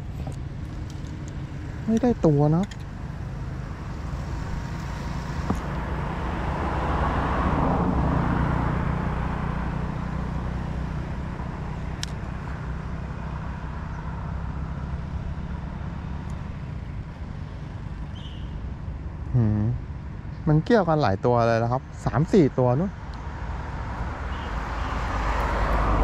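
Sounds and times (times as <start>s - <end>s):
motor vehicle passing: 0.0s - 19.9s, 22.8s - 26.0s
outdoor rumble: 0.0s - 20.2s.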